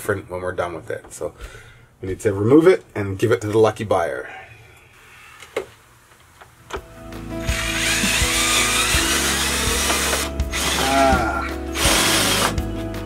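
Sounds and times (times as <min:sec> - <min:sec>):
power tool running: 0:07.4 - 0:12.6.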